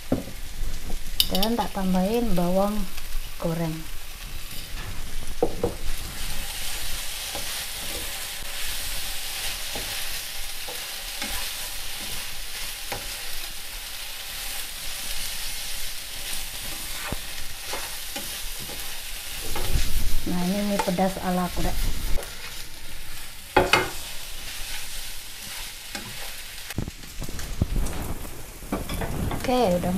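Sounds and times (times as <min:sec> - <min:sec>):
food sizzling in frying pan: 0:00.0 - 0:29.9
utensil scraping and tapping pan: 0:23.6 - 0:24.0.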